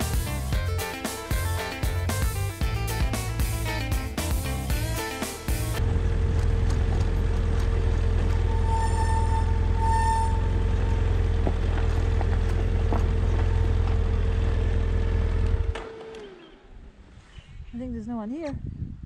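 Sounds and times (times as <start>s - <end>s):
motorcycle engine rumbling: 0.0s - 15.8s
steady whine: 5.5s - 16.9s.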